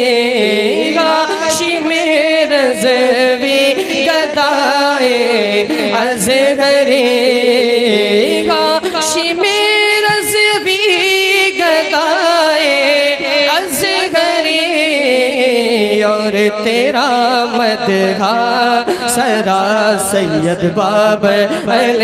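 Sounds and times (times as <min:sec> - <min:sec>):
person singing unaccompanied: 0:00.0 - 0:22.0.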